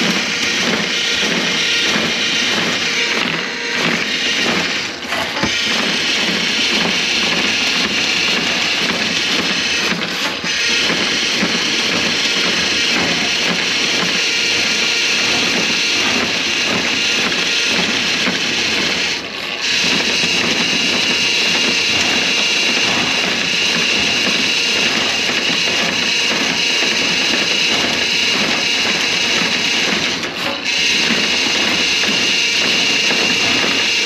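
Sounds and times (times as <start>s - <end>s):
drain cleaning machine rattling: 0.0s - 34.0s.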